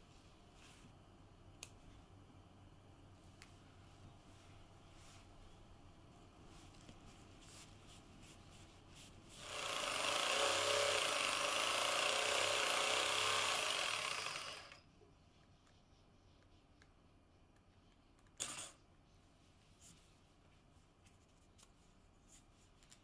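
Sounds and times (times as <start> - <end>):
electric jigsaw cutting board: 9.4 - 14.8.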